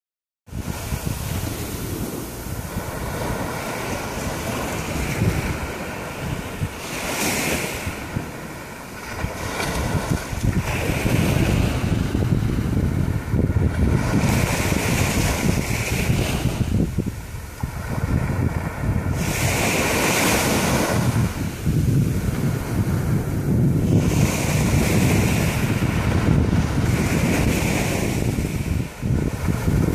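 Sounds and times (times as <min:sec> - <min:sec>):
wind rumble on microphone: 0:00.5 - 0:29.9
small waves lapping on sand: 0:00.6 - 0:29.9.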